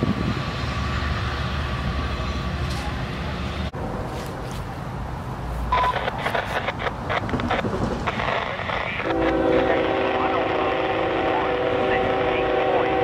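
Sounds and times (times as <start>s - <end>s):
diesel locomotive engine rumble: 0.0s - 13.0s
distant train horn: 9.0s - 13.0s.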